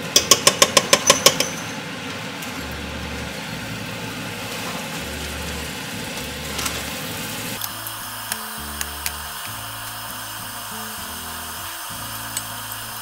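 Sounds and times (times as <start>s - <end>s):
metal spoon tapping a pan: 0.1s - 1.7s
food sizzling in a pan: 3.5s - 13.0s.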